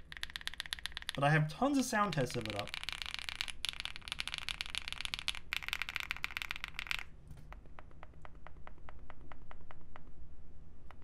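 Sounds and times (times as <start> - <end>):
mechanical keyboard typing: 0.0 - 7.1.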